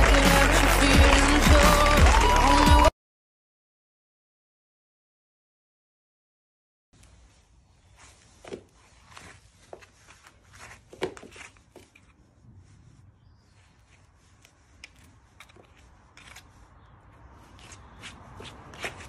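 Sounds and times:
hoof pick scraping hoof: 14.2s - 16.8s, 17.5s - 19.0s.

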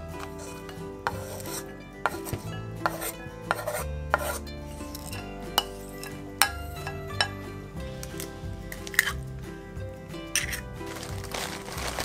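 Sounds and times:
wooden spoon scraping a board: 0.0s - 6.2s
soft background music: 0.0s - 12.0s.

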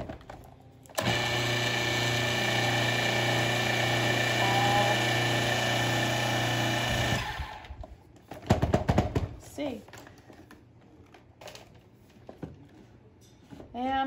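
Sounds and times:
food processor motor grinding: 1.0s - 7.8s.

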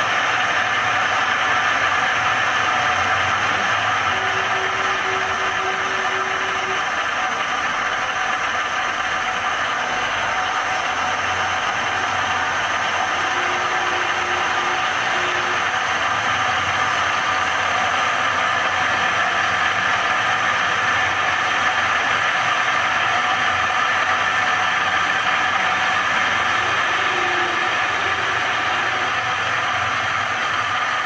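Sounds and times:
milling machine whir: 0.0s - 31.0s.

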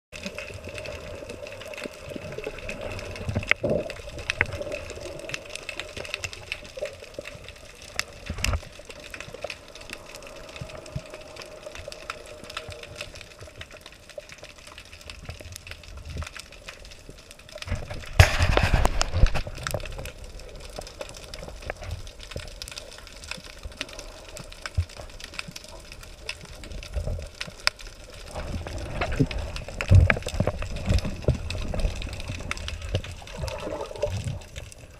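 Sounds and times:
diver's exhaled bubbles rushing: 28.2s - 34.6s.

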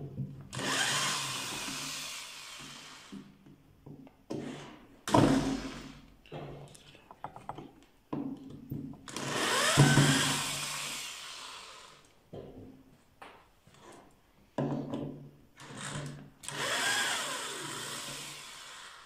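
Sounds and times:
electric drill motor whirring: 0.5s - 3.2s, 9.1s - 12.1s, 15.6s - 19.0s.

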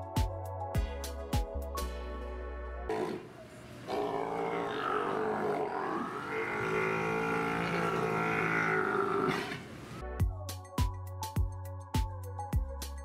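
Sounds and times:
sea lion calling: 2.9s - 10.0s.

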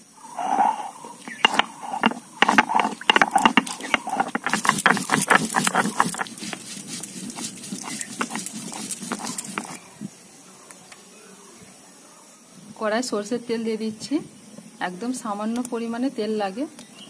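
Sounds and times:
stone grinding on stone: 0.4s - 9.8s.

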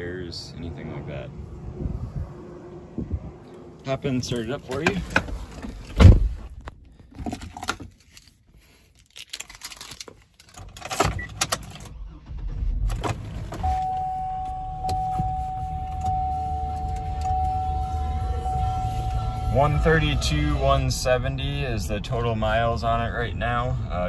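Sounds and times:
car engine starting and idling: 9.6s - 24.0s
steady high tone: 13.6s - 24.0s.

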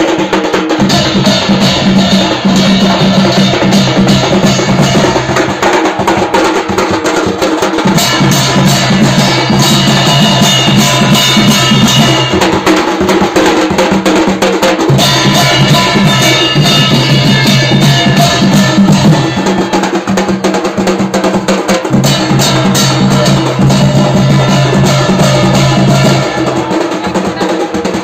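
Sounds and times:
barrel drum: 0.0s - 28.0s
brass gongs struck with sticks: 0.8s - 5.6s, 7.9s - 12.8s, 14.9s - 19.3s, 22.0s - 26.5s.

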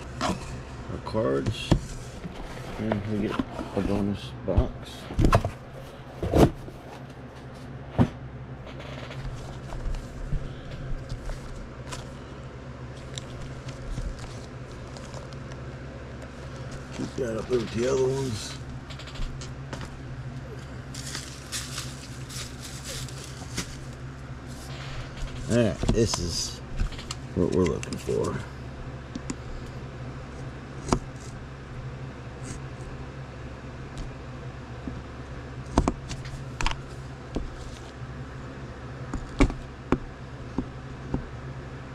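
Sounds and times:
steady low hum: 0.0s - 41.9s
cardboard box rustling and ticking: 12.9s - 18.0s, 20.9s - 24.0s.

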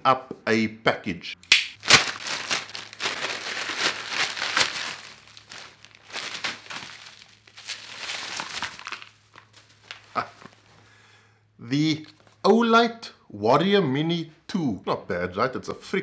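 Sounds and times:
plastic mailer bag crinkling: 1.8s - 10.7s.

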